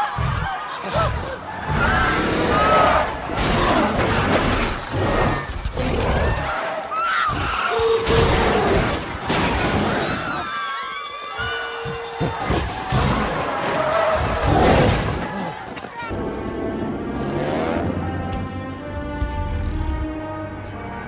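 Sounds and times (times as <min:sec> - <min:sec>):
people screaming: 0:00.0 - 0:16.1
crashing and shattering: 0:03.3 - 0:05.6.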